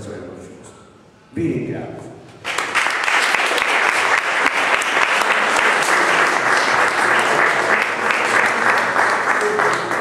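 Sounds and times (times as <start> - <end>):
audience applauding: 2.4 - 10.0.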